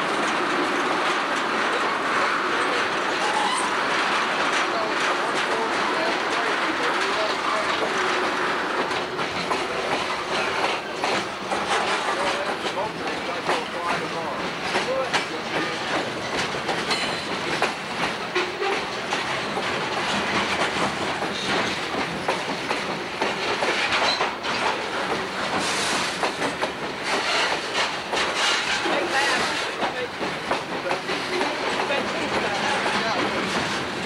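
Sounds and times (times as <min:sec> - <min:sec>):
train rumble: 0:00.0 - 0:34.0
train wheels clacking on rail joints: 0:00.0 - 0:34.0.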